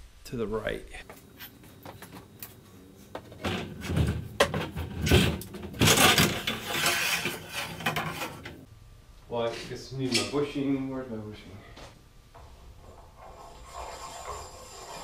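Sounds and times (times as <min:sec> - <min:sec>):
knocks and scraping: 0:01.0 - 0:08.7, 0:11.8 - 0:15.0
metal clanking and rattling: 0:03.3 - 0:08.7.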